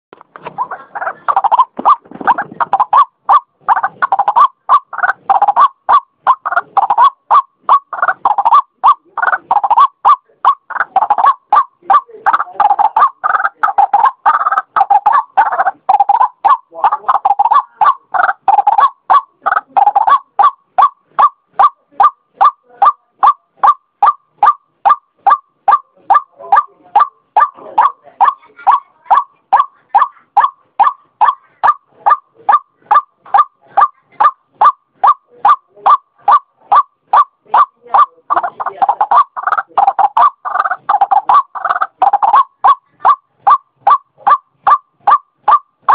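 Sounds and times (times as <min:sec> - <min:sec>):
waterhen calling: 0:00.4 - 0:45.9.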